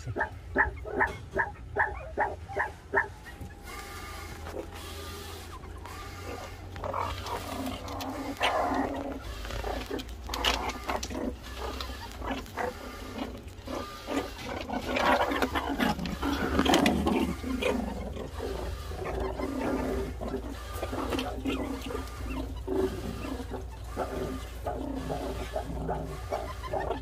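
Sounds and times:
meerkat threat calls: 0.0 - 27.0.

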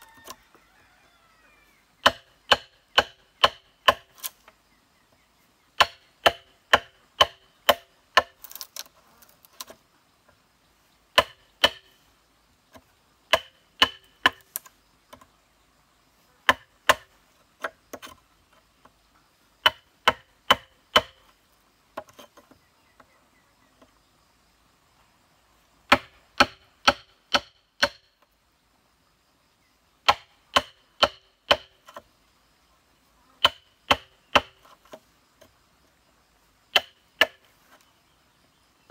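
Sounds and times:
wooden club knocking chisel: 2.0 - 4.1, 11.1 - 12.0, 12.7 - 15.3, 19.6 - 21.3, 30.0 - 32.1, 33.4 - 35.5, 36.7 - 37.6.

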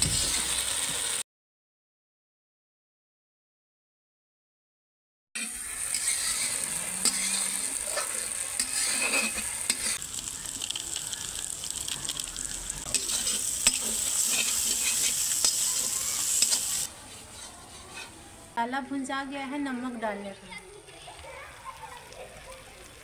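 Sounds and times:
metal spatula scraping a pan: 0.0 - 0.6, 5.4 - 10.0, 12.8 - 18.3
spices sizzling in oil: 0.0 - 1.2, 5.4 - 18.4, 20.8 - 23.0.

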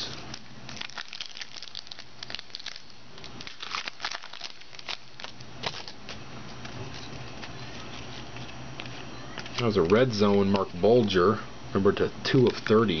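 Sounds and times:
foil wrapper crinkling and tearing: 0.0 - 9.8.

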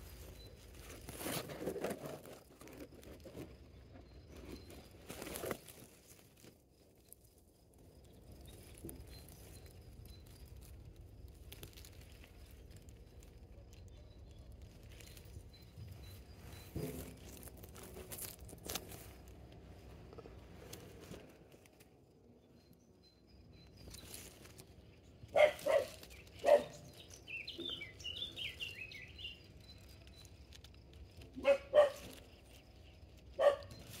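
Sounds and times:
dog barking: 25.3 - 26.8, 31.4 - 32.2, 33.4 - 33.8.

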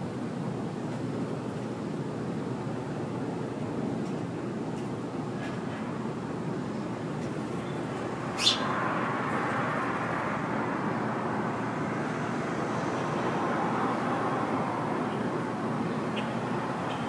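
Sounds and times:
road traffic: 0.0 - 17.0.

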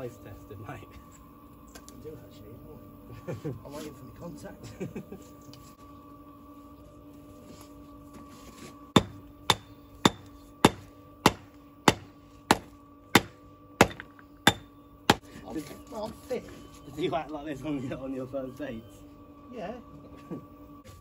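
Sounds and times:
hammer striking stone: 9.0 - 15.2.

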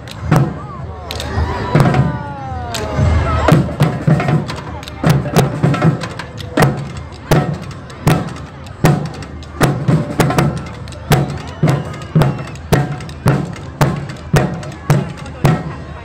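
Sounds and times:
low drum pattern: 0.0 - 0.9, 1.7 - 16.0
sharp drum strikes: 3.5 - 15.8.

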